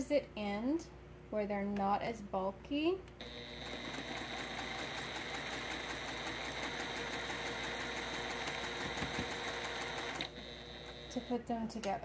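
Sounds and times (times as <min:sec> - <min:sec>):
sewing machine stitching: 0:03.2 - 0:11.4.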